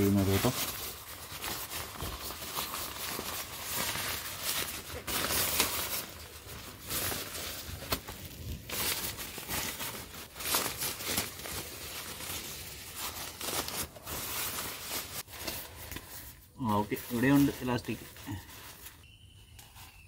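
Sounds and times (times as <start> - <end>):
tent fabric rustling: 0.0 - 19.2.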